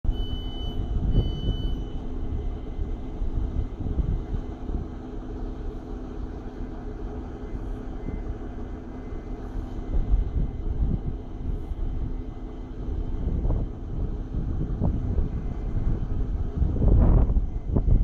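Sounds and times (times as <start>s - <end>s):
diesel engine idling: 0.0s - 18.0s
door warning beeps: 0.1s - 2.1s.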